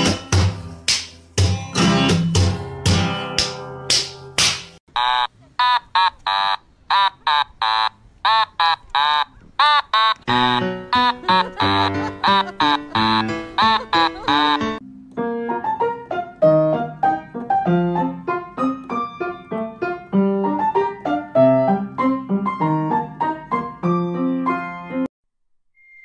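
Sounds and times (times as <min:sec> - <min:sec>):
solo piano music: 0:10.3 - 0:25.1.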